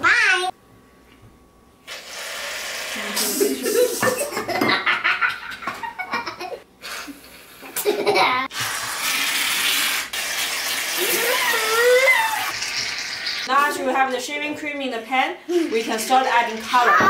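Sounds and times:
aerosol can hissing: 0:01.9 - 0:04.1, 0:08.5 - 0:11.2
children laughing: 0:03.2 - 0:06.6, 0:07.6 - 0:08.5.

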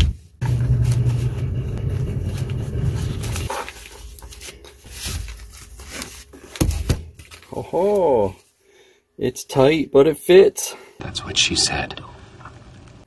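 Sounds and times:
steady low hum: 0:00.0 - 0:07.2
nylon pouch rustling: 0:02.2 - 0:07.6.

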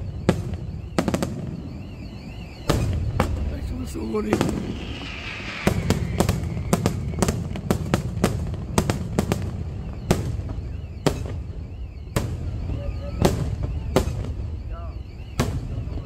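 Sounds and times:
fireworks bursting: 0:00.0 - 0:16.0.

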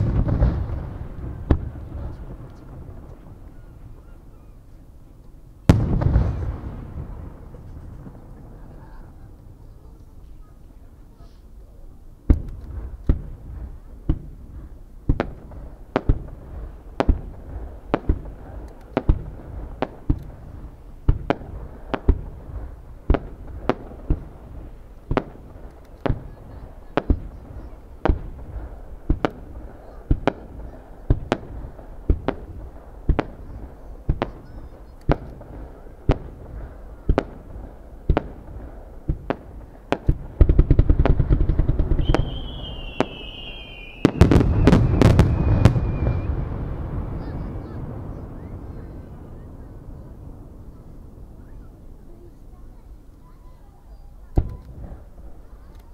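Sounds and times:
rapid firework cracks: 0:00.0 - 0:03.4, 0:05.7 - 0:08.3, 0:12.3 - 0:48.2
fireworks booming: 0:00.0 - 0:11.6, 0:12.2 - 0:55.9.

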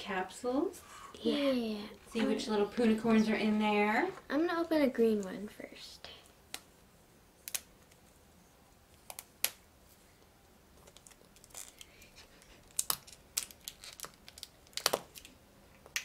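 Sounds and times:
plastic capsule clicks and creaks: 0:12.7 - 0:15.3.

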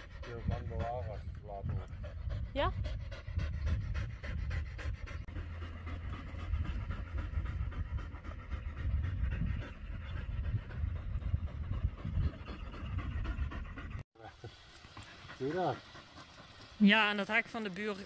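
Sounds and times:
dog panting: 0:00.0 - 0:14.0, 0:15.0 - 0:16.7.

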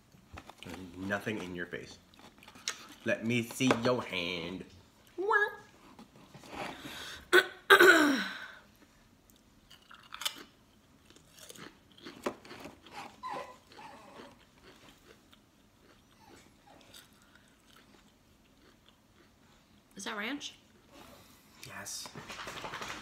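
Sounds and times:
crisp crunching while chewed: 0:00.2 - 0:03.7, 0:09.3 - 0:19.4.

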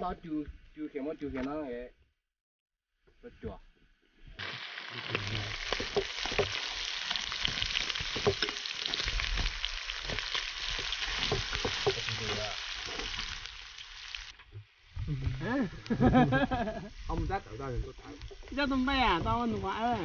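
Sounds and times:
food sizzling in a wok: 0:04.2 - 0:20.0
chopsticks scraping a pan: 0:04.4 - 0:20.0.

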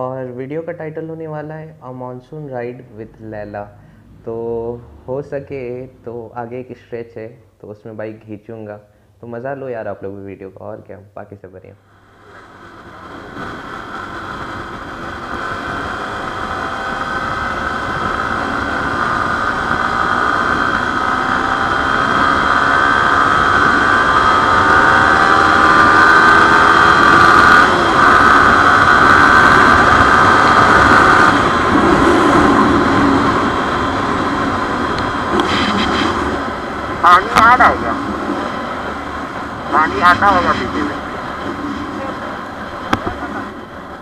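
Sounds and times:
motorcycle engine accelerating: 0:12.2 - 0:44.0
wind rushing over microphone: 0:12.3 - 0:44.0.

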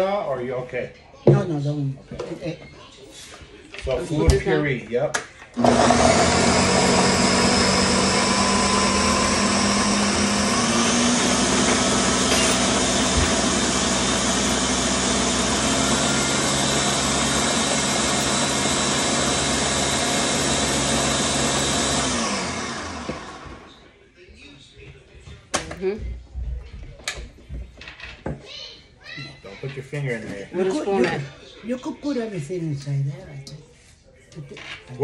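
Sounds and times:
blender running: 0:05.6 - 0:23.8.

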